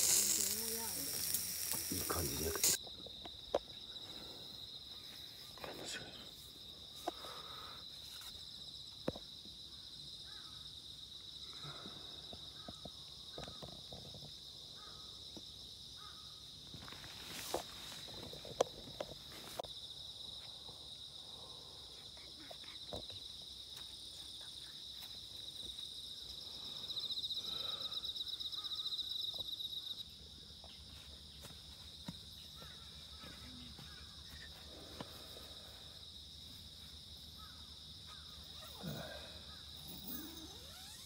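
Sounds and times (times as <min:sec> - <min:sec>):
insects chirping: 0:00.0 - 0:41.0.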